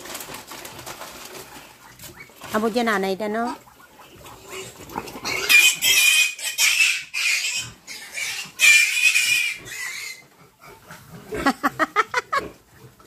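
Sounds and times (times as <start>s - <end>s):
piglet squealing: 4.4s - 10.2s.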